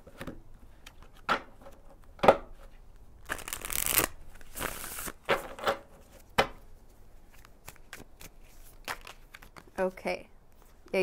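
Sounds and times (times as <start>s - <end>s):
deck of cards riffling: 3.3s - 5.3s, 7.3s - 9.7s.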